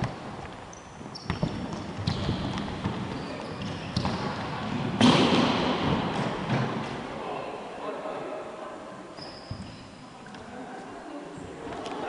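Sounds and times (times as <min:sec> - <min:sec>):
sneakers squeaking on wooden floor: 0:00.0 - 0:05.0, 0:09.2 - 0:10.0.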